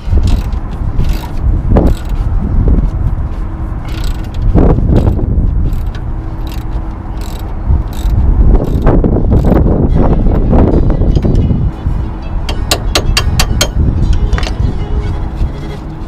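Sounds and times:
low wind rumble on microphone: 0.0 - 16.0
socket ratchet wrench clicking: 0.2 - 2.1, 3.9 - 4.4, 5.0 - 9.6.

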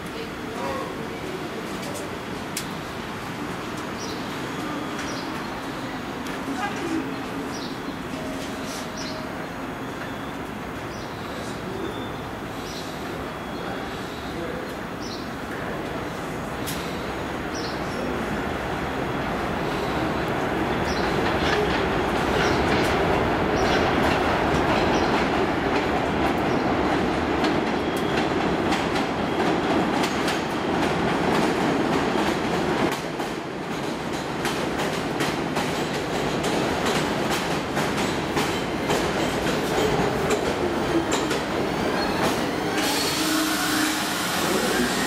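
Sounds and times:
steel wheels rumbling on rails: 14.8 - 45.0.

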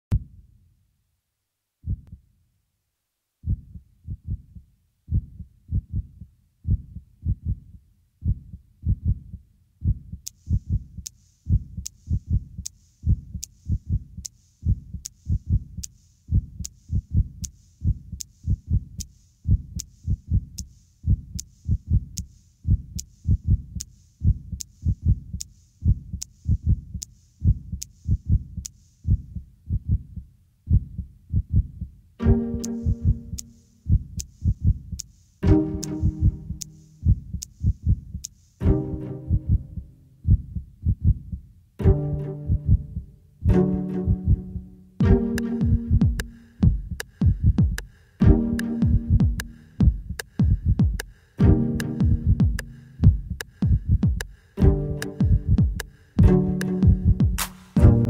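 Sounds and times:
heartbeat-like double thump: 1.8 - 2.1, 3.4 - 7.6, 8.2 - 10.9, 24.2 - 30.1, 30.7 - 41.4, 42.5 - 58.0
sharp ticking with hiss: 10.2 - 29.2, 32.4 - 38.7, 45.3 - 57.8.

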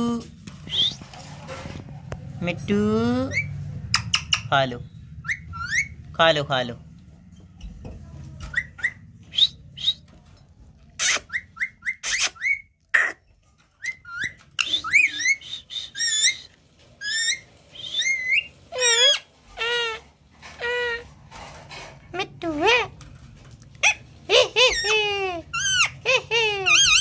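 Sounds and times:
parakeet whistles and chirps: 0.7 - 1.1, 3.3 - 6.0, 8.5 - 10.1, 11.0 - 12.8, 13.8 - 19.9, 26.6 - 27.0
parakeet squawks: 5.2 - 6.0, 11.0 - 21.1, 23.8 - 27.0
parakeet warbling: 5.2 - 6.0, 17.0 - 21.1, 23.8 - 27.0.

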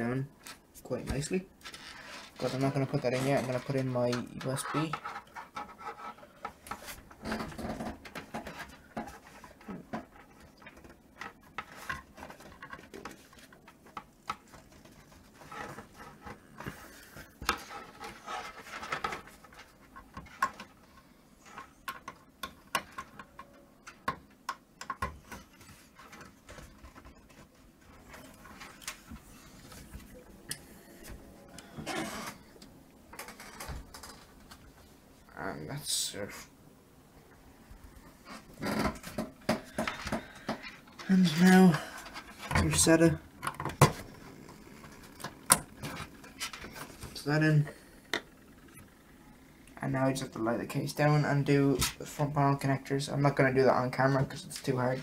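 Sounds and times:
cable rubbing: 1.5 - 24.1.

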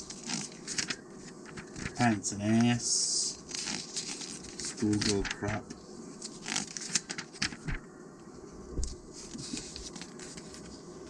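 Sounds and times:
magazine pages crackling and rustling: 0.0 - 2.8, 3.4 - 7.8, 8.7 - 10.8
page thump: 4.8 - 5.6.

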